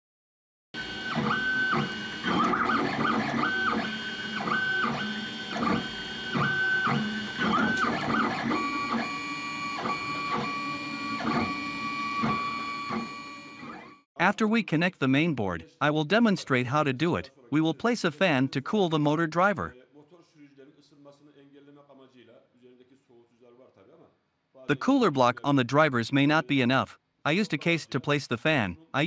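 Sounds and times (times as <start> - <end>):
stepper motors whining: 0.8 - 14.0.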